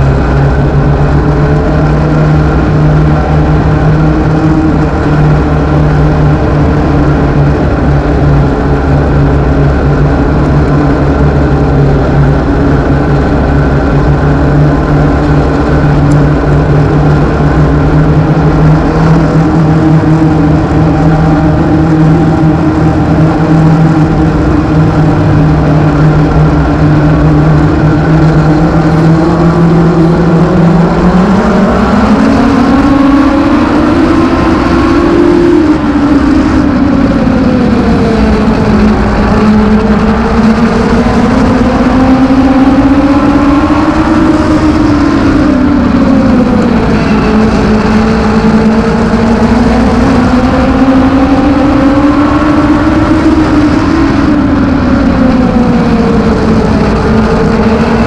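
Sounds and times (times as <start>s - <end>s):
car engine running and revving: 0.0s - 58.0s.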